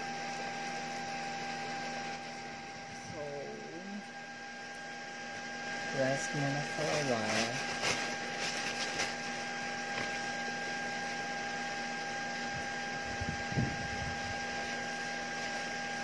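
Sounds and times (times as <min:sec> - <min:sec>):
electrical hum with high whine: 0:00.0 - 0:16.0
tissue rustling against face: 0:06.7 - 0:10.3.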